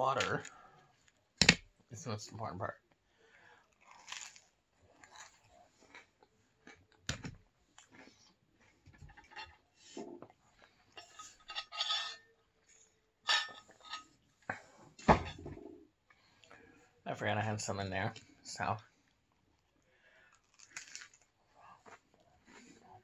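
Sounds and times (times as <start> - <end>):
chewing crispy food: 3.3 - 8.9, 19.0 - 23.0
tableware clinking: 11.0 - 12.3, 13.3 - 14.0.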